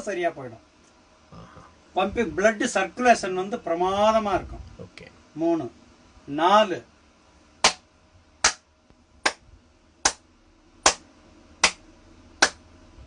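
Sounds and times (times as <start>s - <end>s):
person clapping hands: 7.6s - 7.8s, 8.4s - 9.4s, 10.0s - 10.2s, 10.8s - 11.0s, 11.6s - 11.8s, 12.4s - 12.6s.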